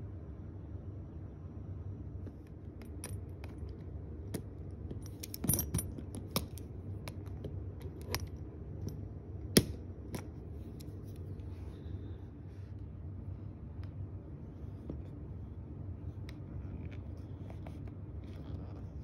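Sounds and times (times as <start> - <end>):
lock clicks and zipper clinks: 5.0 - 8.4.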